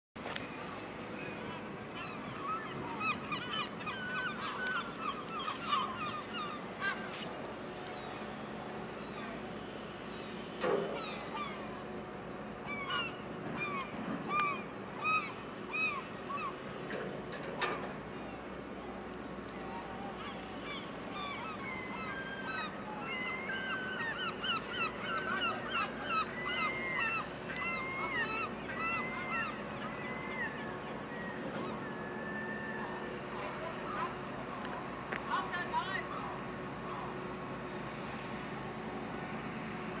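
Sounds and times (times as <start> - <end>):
boat engine hum: 0.2 - 40.0
gulls calling: 0.2 - 40.0
birds chirping: 1.2 - 9.8.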